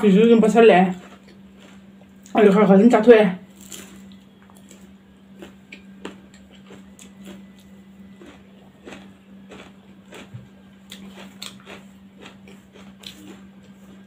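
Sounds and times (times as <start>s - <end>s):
faint steady hum: 0.0s - 14.0s
chewing clicks and smacks: 1.0s - 2.4s, 5.4s - 14.0s.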